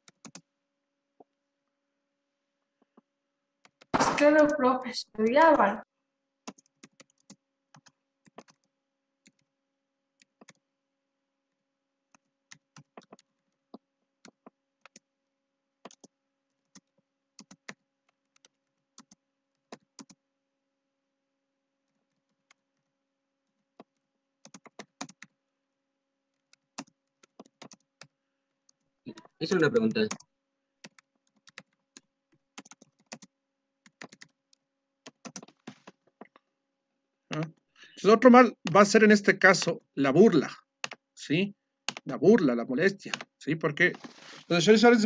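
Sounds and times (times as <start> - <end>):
computer keyboard typing: 0.0 - 0.5, 3.6 - 4.6, 6.4 - 9.5, 10.2 - 10.7, 12.1 - 15.1, 15.8 - 20.2, 21.8 - 25.4, 26.3 - 36.4, 40.8 - 41.1, 41.8 - 42.2, 43.0 - 43.4.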